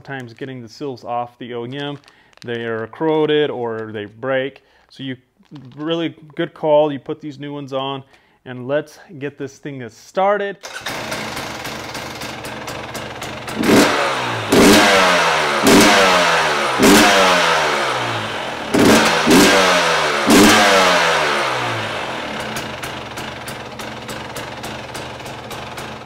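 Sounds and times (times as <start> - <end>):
two-stroke engine revving and idling: 10.6 - 26.0.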